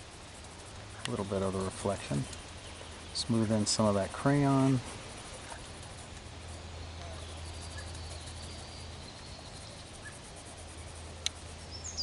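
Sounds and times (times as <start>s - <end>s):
faint insect buzzing: 0.0s - 12.0s
steady low hum: 0.0s - 12.0s
bird chirping: 1.0s - 3.9s, 6.5s - 12.0s.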